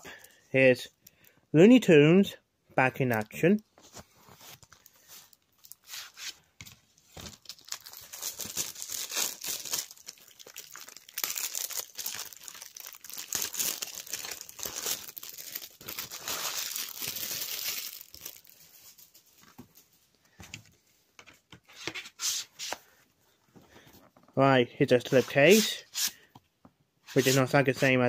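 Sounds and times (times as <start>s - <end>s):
plastic wrap crinkling: 4.5s - 6.2s, 7.1s - 19.6s.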